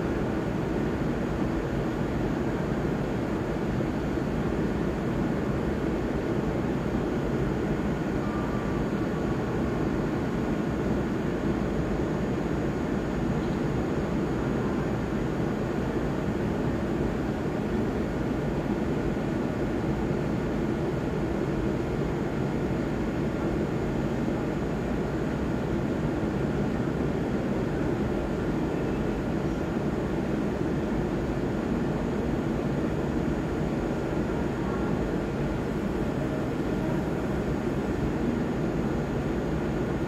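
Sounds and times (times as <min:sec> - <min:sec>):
train rumbling hum: 0:00.0 - 0:40.0
faint whine tones: 0:07.3 - 0:18.0, 0:26.1 - 0:40.0.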